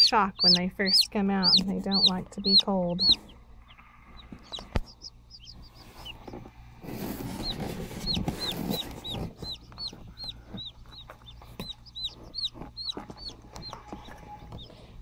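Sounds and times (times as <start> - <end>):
chicks peeping: 0.0 - 15.0
soft rustle: 5.5 - 11.6.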